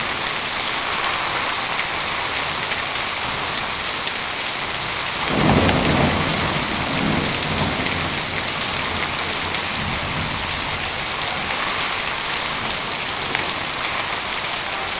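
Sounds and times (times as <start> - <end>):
heavy rain pouring: 0.0 - 14.9
low rumble of thunder: 5.2 - 11.2.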